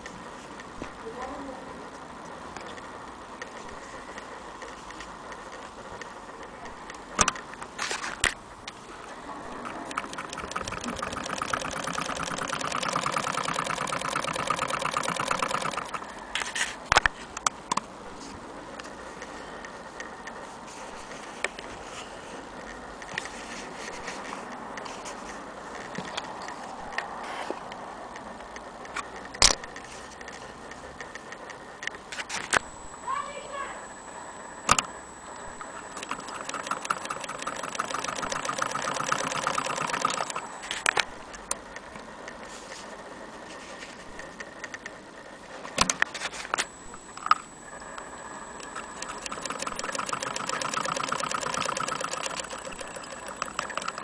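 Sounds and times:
hand-cranked sewing machine rattle: 9.6s - 16.0s, 36.0s - 40.4s, 49.0s - 54.0s.

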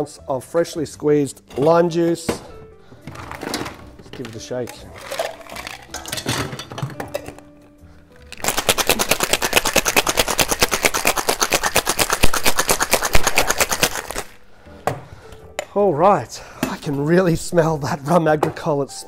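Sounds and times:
ice rattling in cocktail shaker: 4.2s - 7.4s, 8.2s - 14.4s
metal shaker knocks and clinks: 8.3s - 14.3s.

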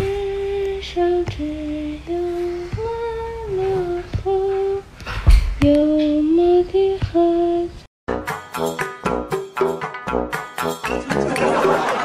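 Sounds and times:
person humming: 0.0s - 4.9s.

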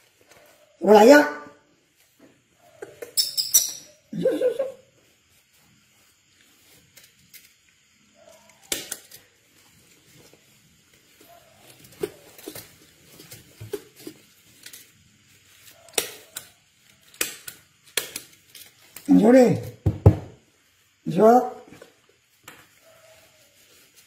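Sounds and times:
diaper rustling and crinkling: 9.0s - 19.6s, 21.7s - 24.0s.

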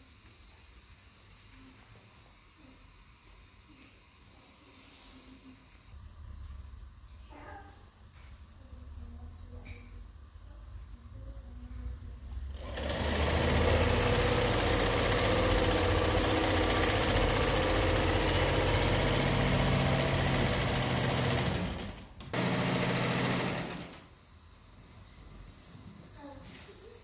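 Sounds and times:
sewing machine stitching: 12.5s - 24.0s.

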